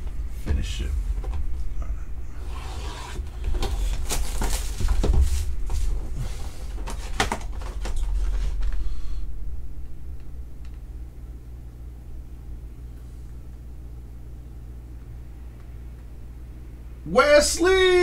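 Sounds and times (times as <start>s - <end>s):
steady low hum: 0.0s - 18.0s
cardboard boxes knocking and scraping: 3.5s - 6.0s.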